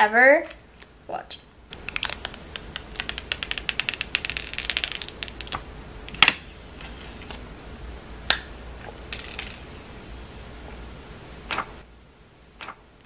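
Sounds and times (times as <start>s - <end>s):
plastic film crackling: 1.7s - 7.4s.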